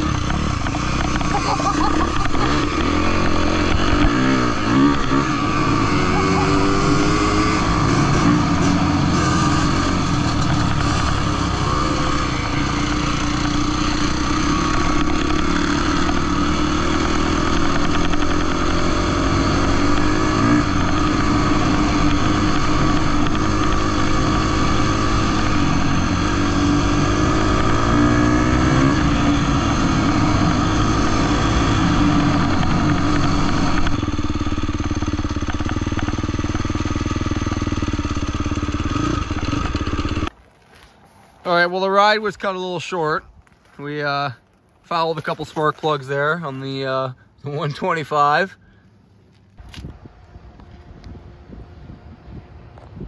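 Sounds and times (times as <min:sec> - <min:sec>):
dirt bike engine revving: 0:00.0 - 0:40.3.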